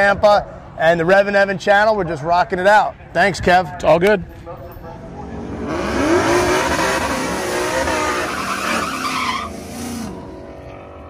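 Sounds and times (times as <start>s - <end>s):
car engine revving: 5.0s - 11.0s
tyres squealing: 6.0s - 10.2s.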